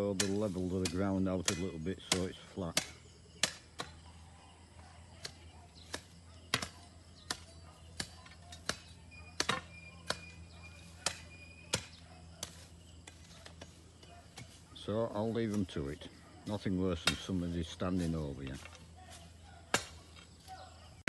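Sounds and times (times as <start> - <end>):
ringing metallic clanks: 8.5 - 11.9.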